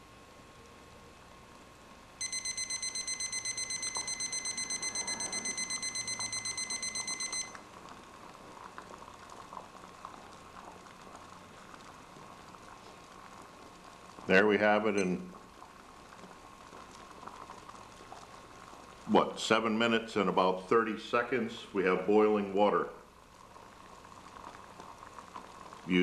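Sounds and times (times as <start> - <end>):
water bubbling in a pot: 1.3 - 26.0
thermometer alarm beeping: 2.2 - 7.6.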